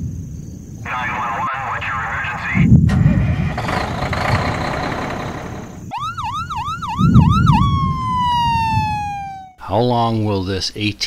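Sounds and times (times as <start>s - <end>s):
rushing noise: 2.3s - 5.9s
low booms: 2.6s - 6.0s, 6.8s - 9.4s
siren yelping and wailing: 5.9s - 9.6s.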